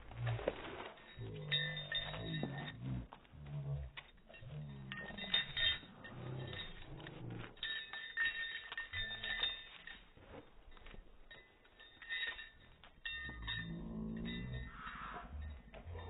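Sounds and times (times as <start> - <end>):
dogs making low vocal sounds: 0.0 - 7.7, 13.4 - 16.0
collar tags and leash clips jingling: 0.0 - 16.0.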